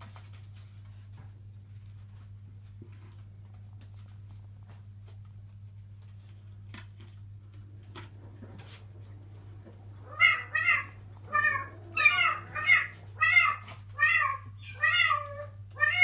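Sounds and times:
kitten meowing: 0:10.1 - 0:16.0.

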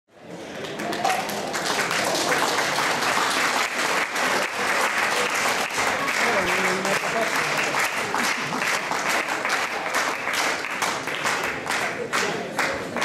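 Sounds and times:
audience applauding: 0:00.4 - 0:13.0.

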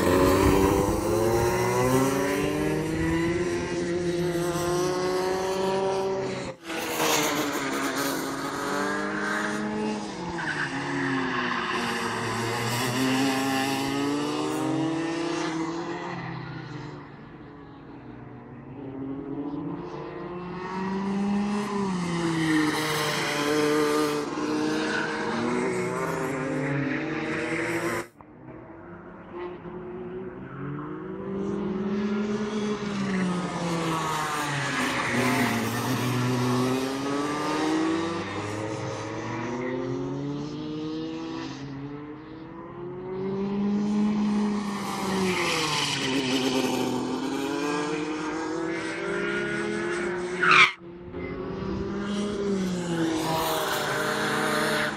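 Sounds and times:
kart engine revving: 0:00.0 - 0:16.1, 0:20.8 - 0:28.0, 0:31.3 - 0:41.5, 0:43.4 - 0:54.9.

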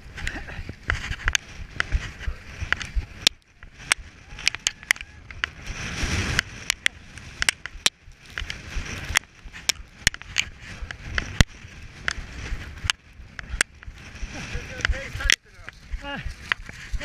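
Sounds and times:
shuffling rustle: 0:00.0 - 0:03.8
knocks and scrapes against snow: 0:00.0 - 0:17.0.

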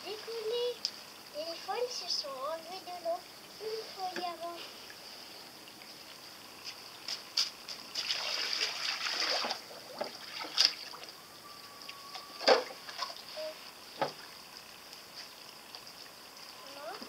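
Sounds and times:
rush of spray: 0:06.5 - 0:11.0
sharp water slaps: 0:06.7 - 0:11.1.

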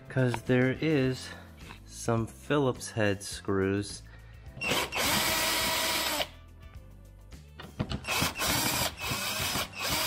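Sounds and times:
power drill running: 0:04.6 - 0:06.3, 0:08.0 - 0:10.0.

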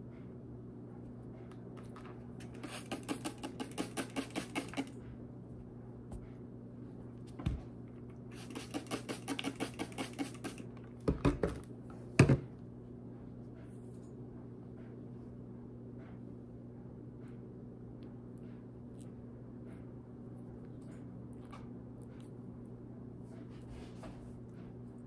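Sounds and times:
spray bottle squirting: 0:02.5 - 0:04.9, 0:08.3 - 0:10.7.

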